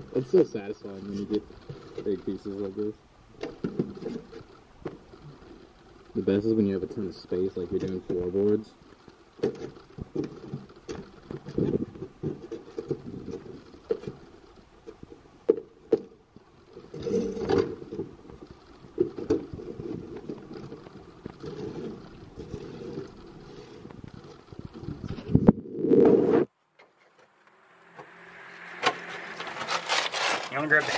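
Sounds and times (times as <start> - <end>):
scraper scraping on metal: 28.7 - 30.9.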